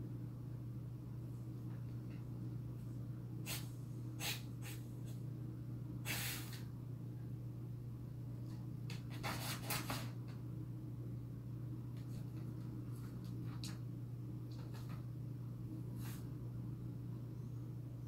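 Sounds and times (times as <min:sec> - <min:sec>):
steady low hum: 0:00.0 - 0:18.0
dog sniffing: 0:03.4 - 0:04.8, 0:06.1 - 0:06.6.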